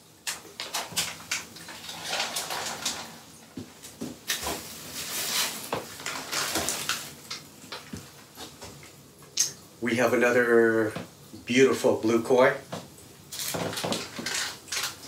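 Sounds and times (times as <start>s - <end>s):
plastic bags crinkling: 0.6s - 3.4s, 4.3s - 8.0s, 13.3s - 15.0s.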